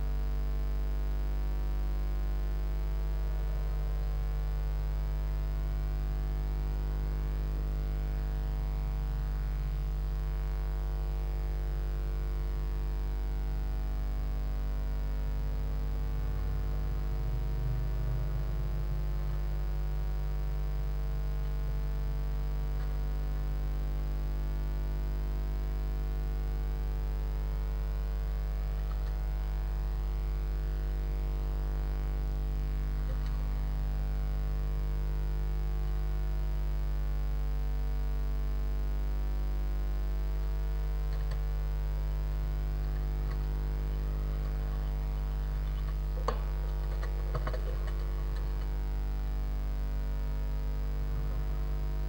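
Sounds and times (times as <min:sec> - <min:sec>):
electrical mains hum: 0:00.0 - 0:52.0.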